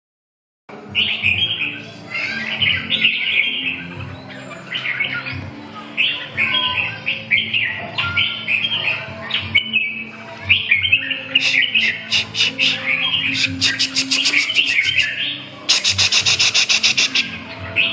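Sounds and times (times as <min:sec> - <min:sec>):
birds singing and chattering: 0:00.8 - 0:17.9
rapid sharp repeated bird notes: 0:10.5 - 0:17.9.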